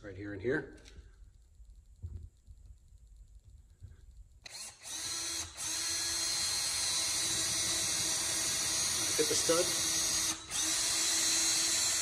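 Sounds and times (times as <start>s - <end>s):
cordless drill boring drywall: 4.4s - 12.0s.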